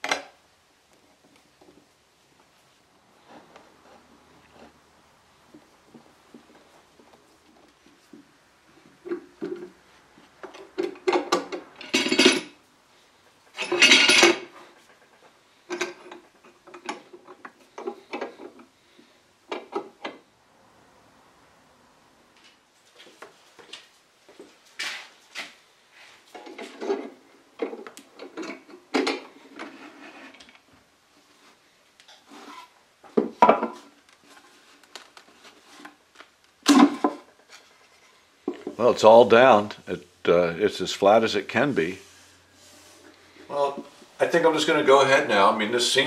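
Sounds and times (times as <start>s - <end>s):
metal clamps clanking and sliding: 13.5s - 15.1s.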